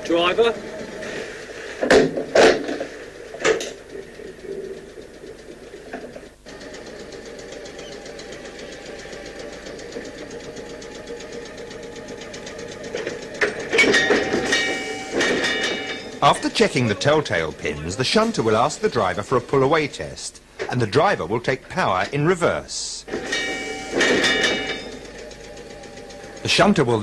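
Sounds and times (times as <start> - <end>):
electric train humming: 0.0 - 27.0
couplers knocking and squealing: 7.4 - 9.0, 12.9 - 19.3, 23.1 - 27.0.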